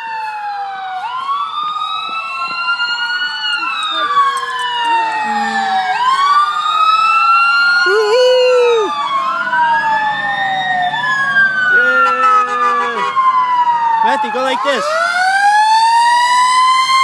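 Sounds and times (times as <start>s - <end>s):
fire truck sirens wailing: 0.0s - 17.0s
horn blast: 12.0s - 13.2s.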